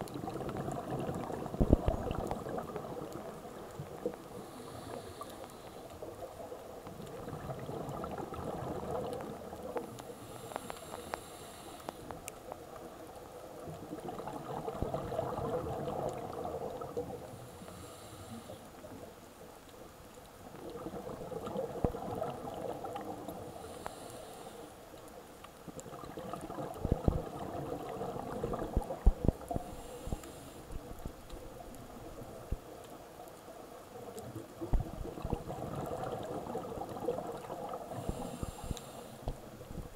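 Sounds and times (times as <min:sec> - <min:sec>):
regulator inhalation hiss: 0:04.4 - 0:05.9, 0:10.1 - 0:12.2, 0:17.4 - 0:18.6, 0:23.6 - 0:24.8, 0:29.6 - 0:30.7, 0:37.9 - 0:39.2
bubbling exhaled air: 0:07.1 - 0:09.6, 0:13.8 - 0:17.2, 0:25.8 - 0:30.8, 0:34.7 - 0:39.9.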